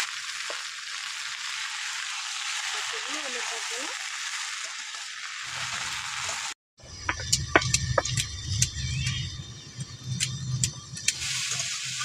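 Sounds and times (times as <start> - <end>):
food sizzling in hot oil: 0.0 - 12.0
grinding stone on stone slab: 6.9 - 8.3.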